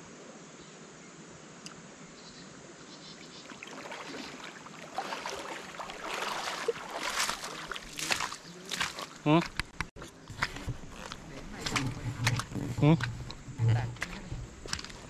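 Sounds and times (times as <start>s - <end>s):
person wading through water: 3.3s - 15.0s.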